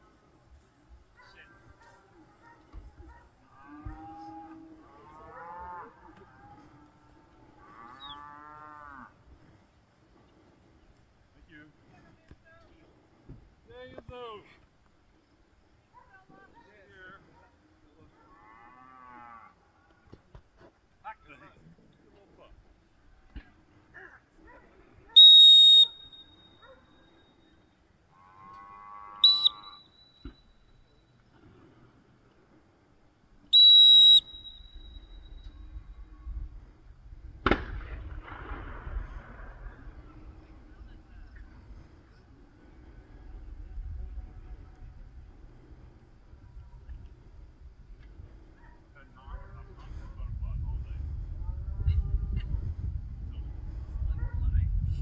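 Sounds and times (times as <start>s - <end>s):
cow mooing: 3.5s - 9.1s, 28.1s - 29.2s
shrill dog whistle blasts: 25.2s - 26.6s, 29.2s - 29.8s, 33.5s - 35.6s.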